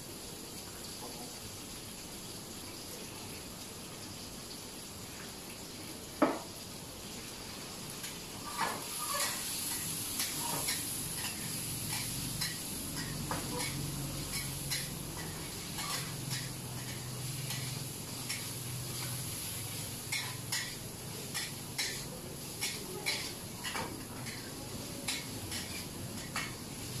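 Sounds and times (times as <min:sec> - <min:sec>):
food sizzling in pan: 0:00.0 - 0:27.0
utensils clinking on pan and dishes: 0:08.0 - 0:27.0.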